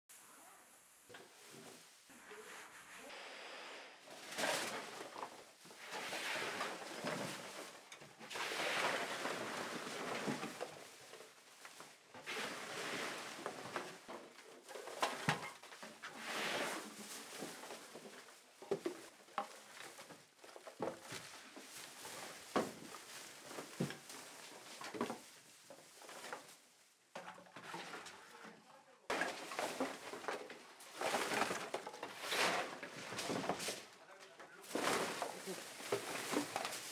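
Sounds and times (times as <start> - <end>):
plastic garbage bag rustling: 16.7 - 27.0, 29.1 - 34.0, 34.6 - 36.9
debris clicks and knocks: 29.1 - 36.9.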